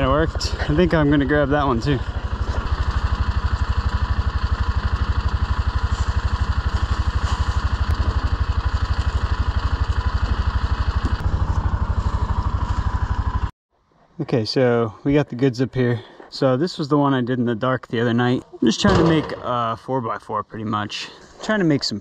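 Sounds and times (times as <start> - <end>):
utility vehicle engine running: 0.0 - 13.5.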